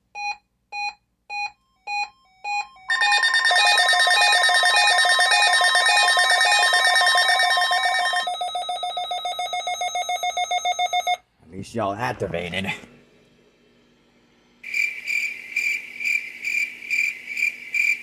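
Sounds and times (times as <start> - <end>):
alarm beeps and tones: 0.2 - 11.2.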